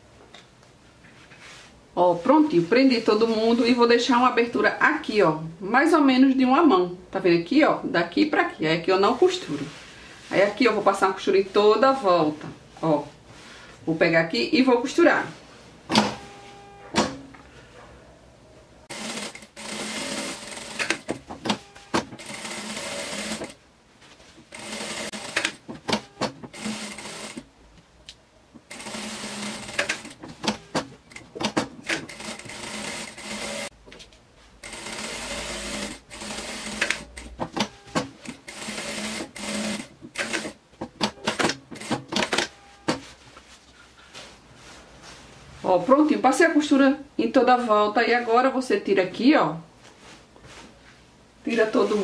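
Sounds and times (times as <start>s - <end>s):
sewing machine stitching: 18.9s - 23.6s, 24.5s - 27.4s, 28.7s - 33.7s, 34.6s - 42.5s.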